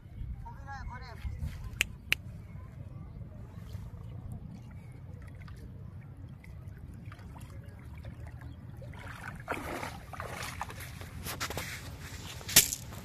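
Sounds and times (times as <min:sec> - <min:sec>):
feet wading through water: 0:03.2 - 0:12.5
water splashing and dripping: 0:05.2 - 0:11.2.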